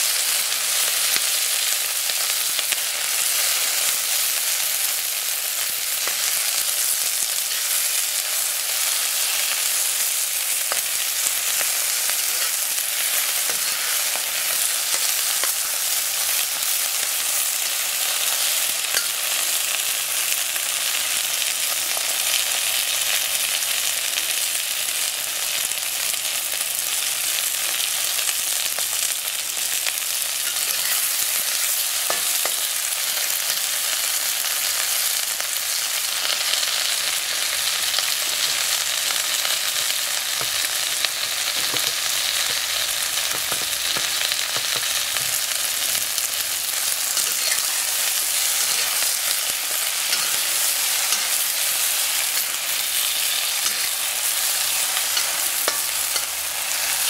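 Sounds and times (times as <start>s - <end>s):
vegetables sizzling in a wok: 0.0s - 57.0s
metal spatula stirring: 11.5s - 16.0s, 30.4s - 32.6s, 46.8s - 57.0s.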